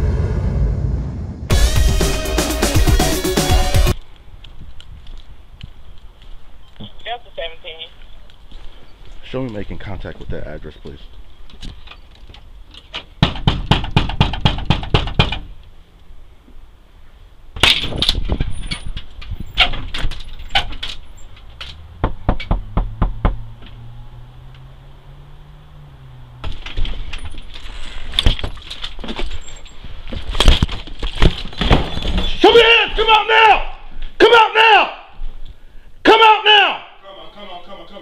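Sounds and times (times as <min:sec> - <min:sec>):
hard banging on a door: 0:13.2 - 0:15.5, 0:22.0 - 0:23.4.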